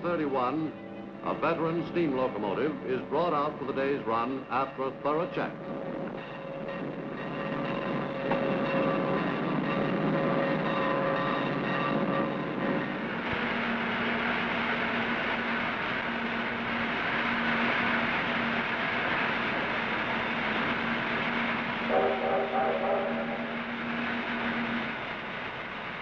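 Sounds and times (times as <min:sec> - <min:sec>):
steam locomotive hissing: 0:16.9 - 0:26.0.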